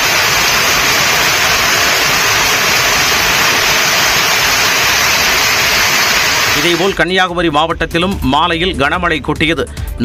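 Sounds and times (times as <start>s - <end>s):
heavy rain pouring: 0.0s - 7.0s.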